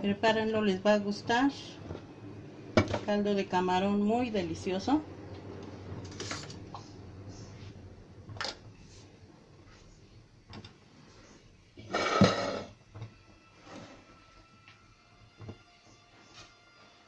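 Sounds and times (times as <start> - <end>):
spoon scraping a bowl: 11.8 - 12.8.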